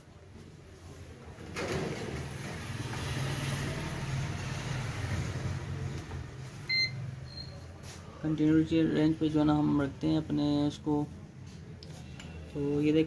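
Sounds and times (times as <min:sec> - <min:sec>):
short electronic beeps: 0:06.7 - 0:07.6.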